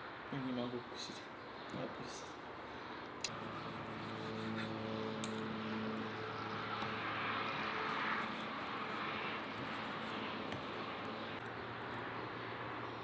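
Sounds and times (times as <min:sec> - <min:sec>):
distant engine droning: 0:00.0 - 0:13.0.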